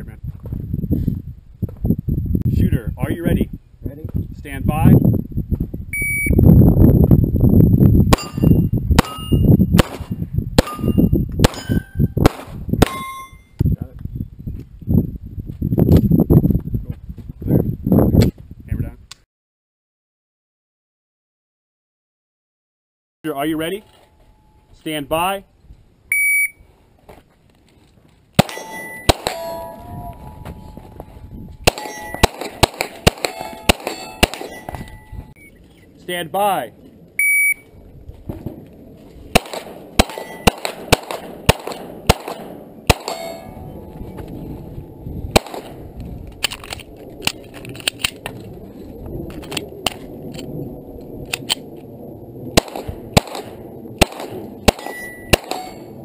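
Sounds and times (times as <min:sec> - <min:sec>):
steel target plate clang: 0:08.2 - 0:09.5, 0:12.8 - 0:13.5, 0:28.4 - 0:29.9, 0:31.7 - 0:35.1, 0:40.0 - 0:40.6, 0:43.0 - 0:43.7, 0:54.7 - 0:56.0
handgun shots: 0:28.4 - 0:29.7, 0:31.7 - 0:34.8, 0:39.4 - 0:43.5, 0:52.6 - 0:55.8
loud low rumble: 0:40.8 - 0:54.7.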